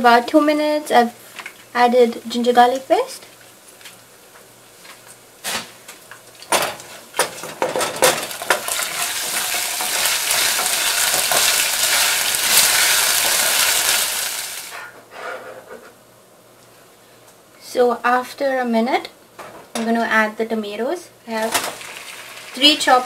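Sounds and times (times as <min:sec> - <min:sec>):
spices sizzling in hot oil: 0:06.2 - 0:14.8, 0:21.3 - 0:23.0.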